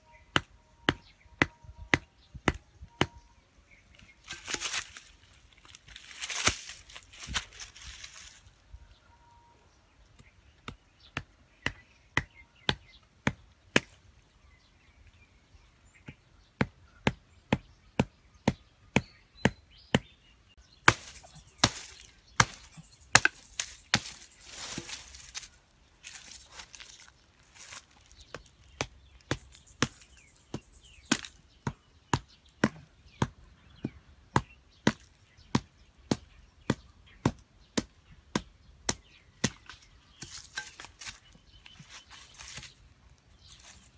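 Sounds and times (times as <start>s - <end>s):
machete knocking wooden stake: 0.3s - 3.3s, 20.8s - 26.8s, 28.3s - 33.4s.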